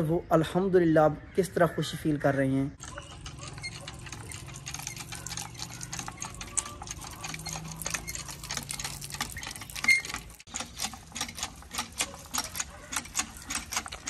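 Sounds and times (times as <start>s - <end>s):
hand pump clicking: 2.8s - 14.0s.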